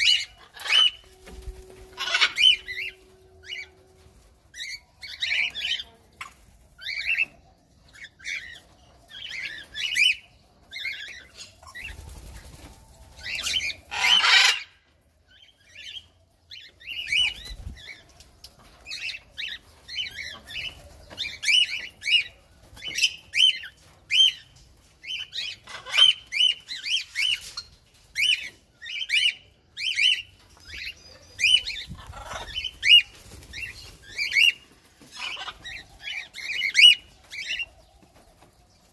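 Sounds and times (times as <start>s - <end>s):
birds chirping: 0.0s - 38.9s.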